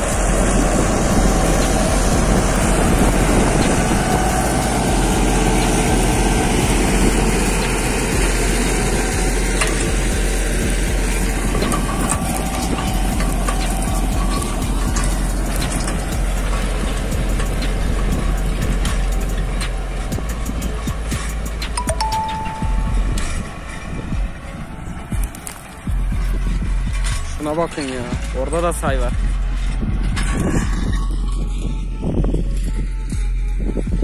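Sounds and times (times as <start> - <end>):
tractor diesel engine under load: 0.0 - 34.0
soil scraping over plough: 0.4 - 20.1, 24.8 - 31.7.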